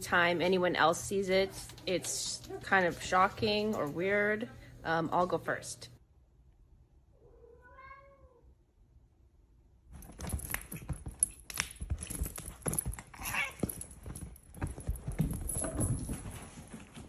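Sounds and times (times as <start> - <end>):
cat meowing: 7.2 - 8.5
cats scuffling on cushions: 10.0 - 17.0.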